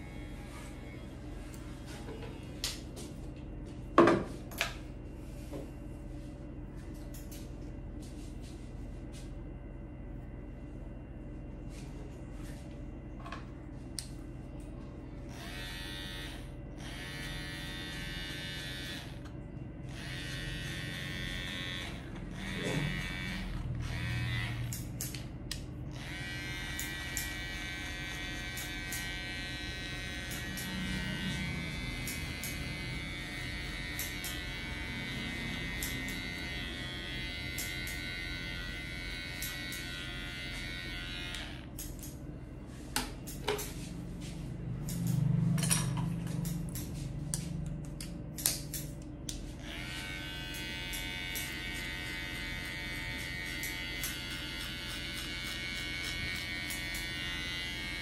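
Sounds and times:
electric hair clippers buzzing: 0:00.0 - 0:01.0, 0:15.2 - 0:42.3, 0:43.3 - 0:58.0.

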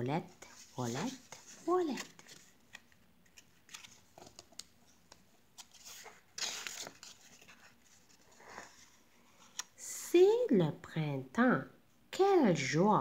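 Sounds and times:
paper page turning: 0:00.4 - 0:09.7.

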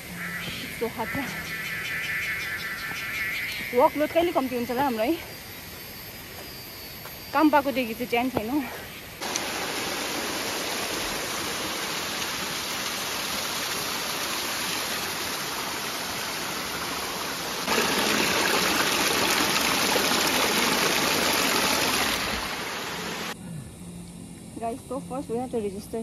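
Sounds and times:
running water stream: 0:08.6 - 0:23.4.

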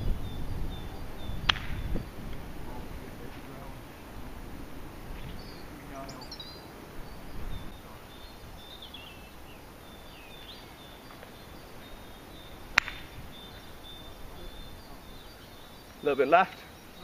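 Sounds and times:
birds chirping: 0:00.0 - 0:17.0
golf club striking ball: 0:01.4 - 0:02.4, 0:12.7 - 0:13.5.

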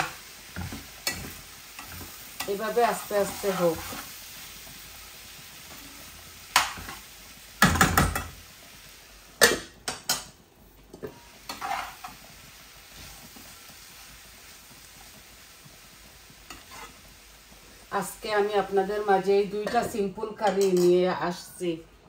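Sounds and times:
spoon scraping frying pan: 0:00.0 - 0:04.2, 0:05.6 - 0:08.4, 0:10.9 - 0:12.4, 0:16.4 - 0:17.1, 0:19.0 - 0:21.1
food sizzling: 0:00.0 - 0:22.0.

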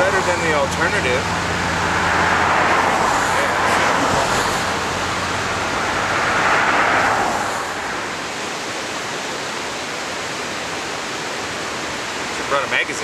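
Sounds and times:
creek rapids rushing: 0:00.0 - 0:13.0
louder whoosh: 0:01.4 - 0:08.6.

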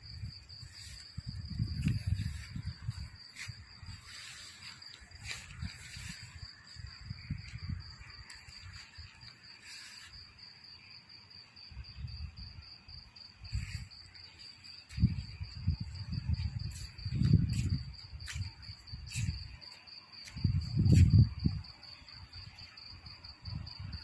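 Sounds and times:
crickets chirping: 0:00.0 - 0:24.0.

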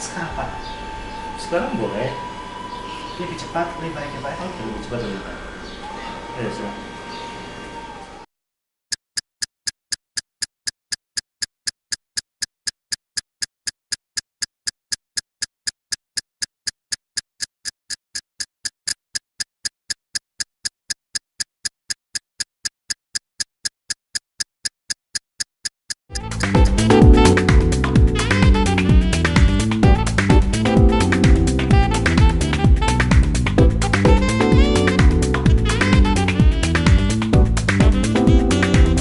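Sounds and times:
electronic ticks: 0:08.9 - 0:29.4.

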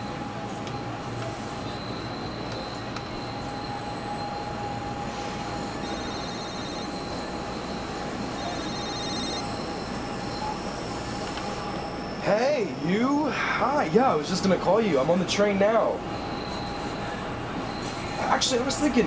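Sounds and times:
train interior rumble and whine: 0:00.0 - 0:19.0
high squealing tones: 0:01.6 - 0:12.8.

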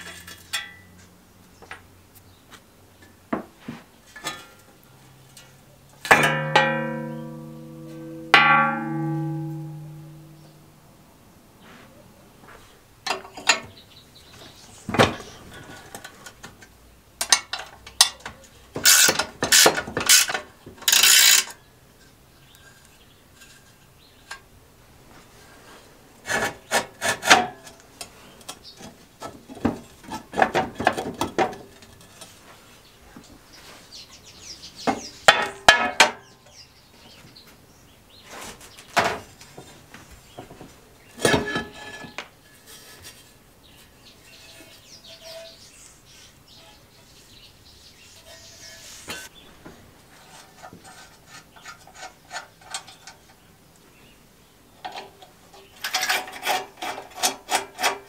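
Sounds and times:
metal casing scraping and knocking: 0:06.0 - 0:10.7, 0:38.4 - 0:45.6, 0:50.1 - 0:53.4
spanner clinking on nuts: 0:06.1 - 0:10.5, 0:17.2 - 0:21.6.

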